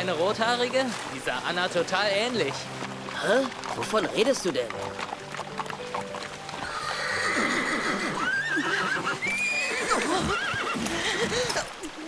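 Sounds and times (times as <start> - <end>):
horses whinnying: 3.1 - 11.8.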